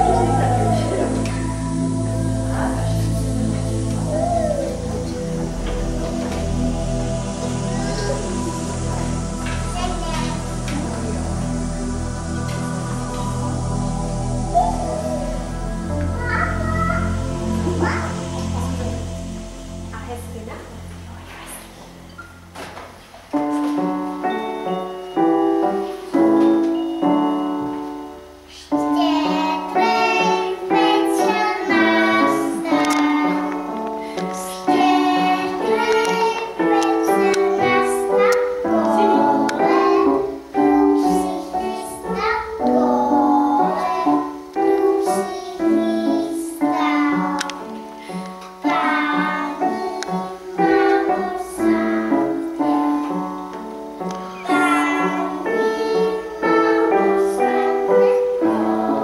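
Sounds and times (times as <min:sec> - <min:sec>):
children singing: 0:00.0 - 0:19.4, 0:24.2 - 0:59.0
piano: 0:00.0 - 0:59.0.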